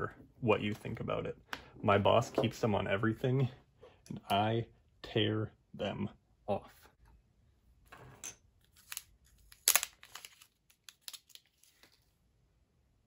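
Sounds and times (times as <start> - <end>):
plastic wrapping crinkling: 8.8 - 12.2.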